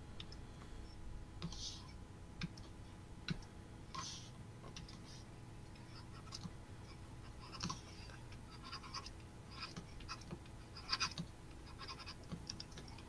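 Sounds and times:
low steady hum: 0.0s - 13.0s
stylus scratching on tablet: 4.0s - 13.0s.

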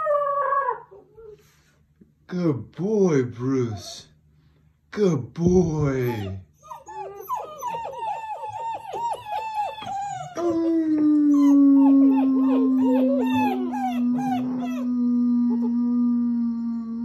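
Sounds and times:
puppies howling: 0.0s - 1.2s, 5.8s - 17.0s
puppies yelping: 5.8s - 14.9s
deep steady howl: 9.8s - 17.0s.

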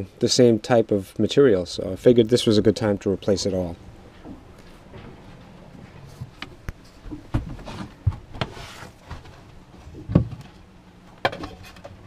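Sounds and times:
wooden hatch knocks and clunks: 7.1s - 8.5s, 10.0s - 10.4s.

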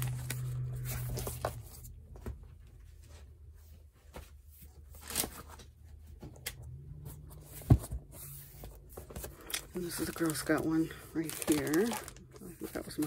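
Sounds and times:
low steady hum: 0.0s - 13.0s
plastic sheets rustling: 3.9s - 5.9s, 7.3s - 13.0s.

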